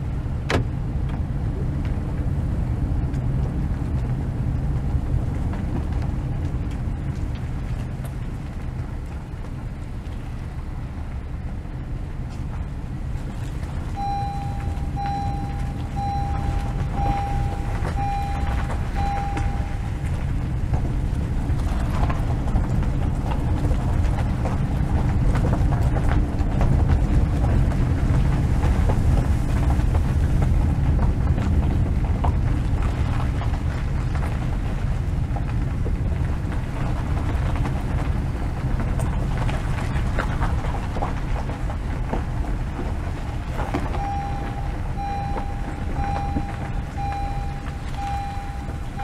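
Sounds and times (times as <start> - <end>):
steady low rumble: 0.0 - 49.0
short electronic beeps: 14.0 - 20.0, 44.0 - 49.0.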